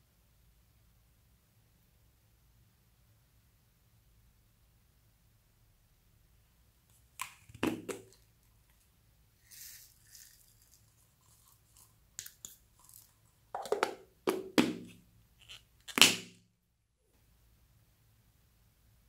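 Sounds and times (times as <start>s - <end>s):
plastic capsule knocking: 7.5s - 8.2s, 13.6s - 15.0s
foam beads rustling: 9.4s - 13.2s.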